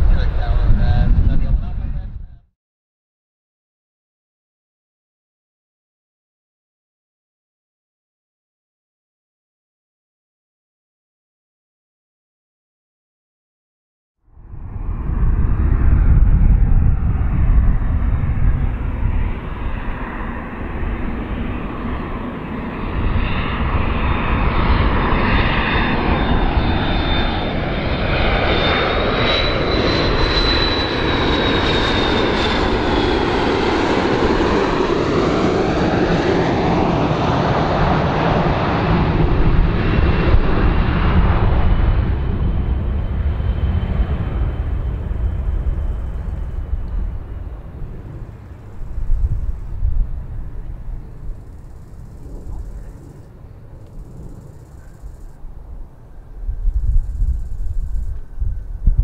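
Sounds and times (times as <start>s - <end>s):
jet engine noise: 0.0s - 2.4s, 14.3s - 59.0s
high engine whine: 14.3s - 59.0s.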